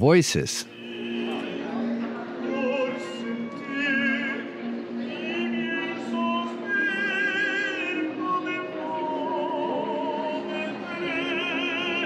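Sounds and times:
man singing opera: 2.4s - 12.0s.

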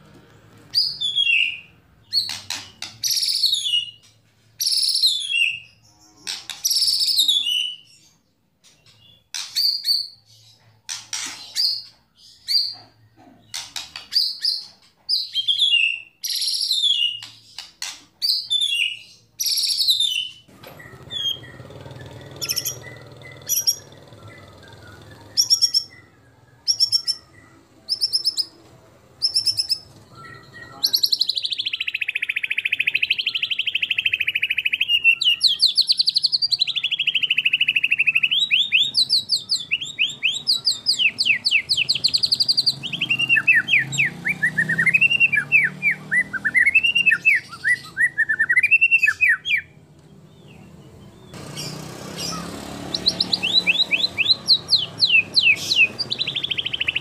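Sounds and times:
bird singing whistled phrases: 0.8s - 4.0s, 24.6s - 28.5s, 29.2s - 49.7s, 52.9s - 57.0s.

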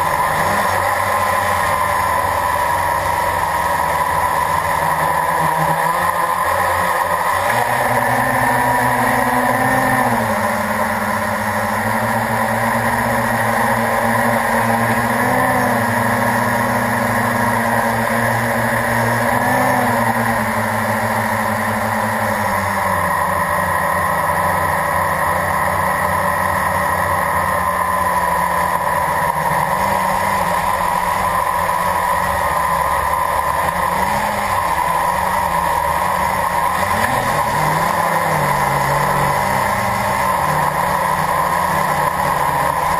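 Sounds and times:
quadcopter motors whining: 0.0s - 42.9s.

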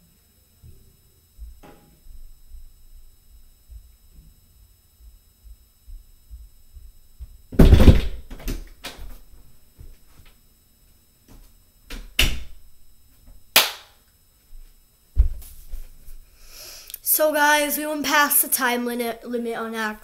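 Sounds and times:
thumps and knocks in a room: 0.6s - 4.4s, 5.0s - 10.4s, 11.2s - 13.5s, 14.4s - 16.3s.

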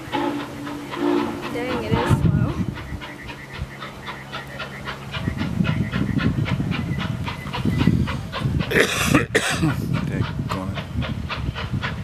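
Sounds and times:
low rumble: 0.0s - 8.8s
steam locomotive chuffing: 0.0s - 12.0s.

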